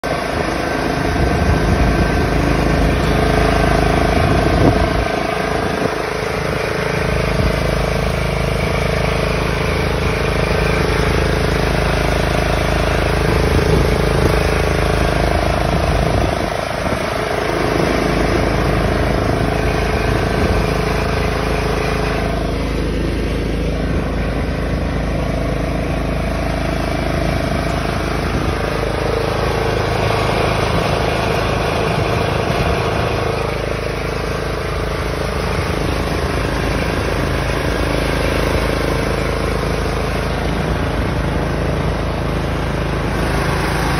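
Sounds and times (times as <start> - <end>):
riding lawn mower engine running: 0.0 - 43.9.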